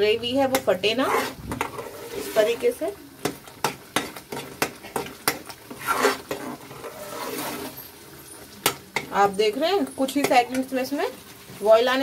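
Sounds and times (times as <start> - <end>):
metal spatula scraping pan: 0.5 - 2.7, 3.6 - 9.3.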